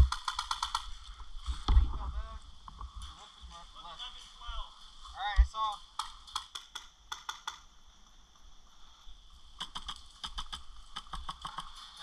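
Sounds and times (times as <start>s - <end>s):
airsoft gun clicks: 0.0s - 0.9s, 5.9s - 7.7s, 9.6s - 11.7s.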